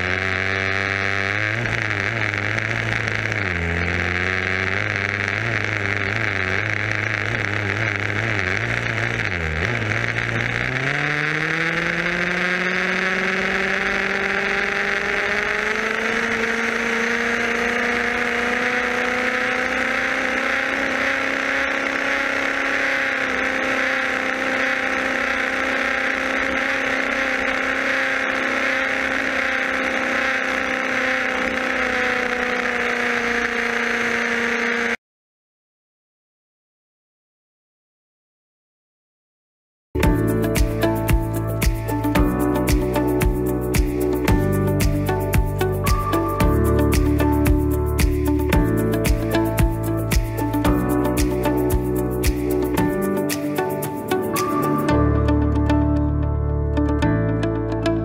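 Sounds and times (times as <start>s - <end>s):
rc car motor whining: 0.0s - 35.0s.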